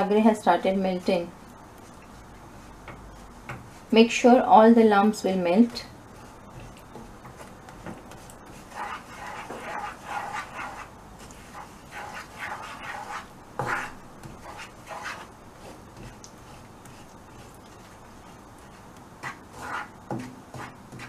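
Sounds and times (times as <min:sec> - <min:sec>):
wooden spoon scraping sticky syrup: 0:05.6 - 0:21.0.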